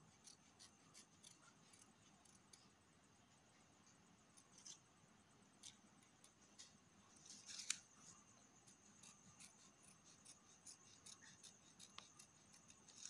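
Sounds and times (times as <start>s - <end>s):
scissors snipping paper: 0.1s - 2.7s, 7.3s - 7.8s, 8.6s - 13.0s.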